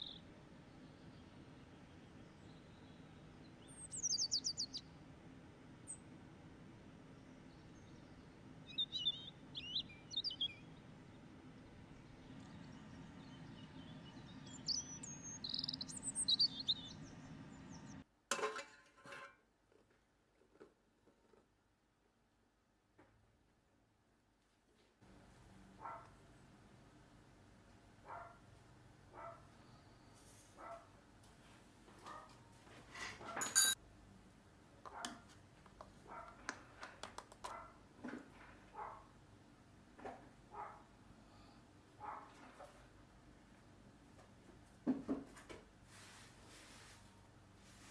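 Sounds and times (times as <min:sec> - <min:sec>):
small birds chirping and whistling: 0:00.0 - 0:00.2, 0:03.6 - 0:04.8, 0:08.7 - 0:10.7, 0:12.4 - 0:18.0
low background hum: 0:00.0 - 0:47.9
metal spoon scraping a tub: 0:18.3 - 0:19.4
flour rustling into a pan: 0:45.9 - 0:47.9.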